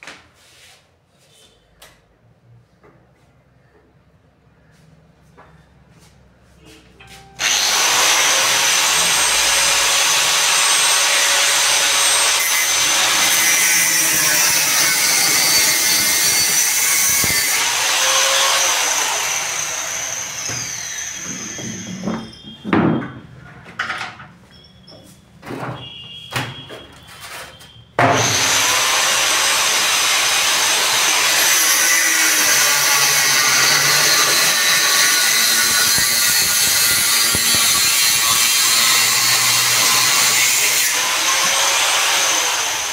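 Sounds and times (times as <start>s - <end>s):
angle grinder cutting metal: 7.4s - 22.3s, 28.1s - 42.9s.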